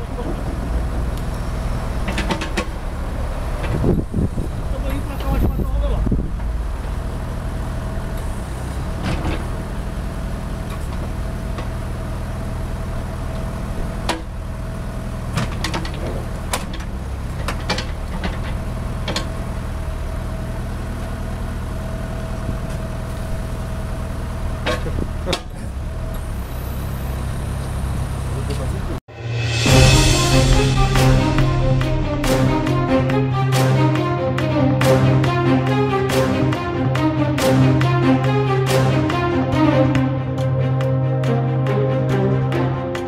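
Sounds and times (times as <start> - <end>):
diesel engine running: 0.0 - 43.0
steady whine: 29.1 - 40.1.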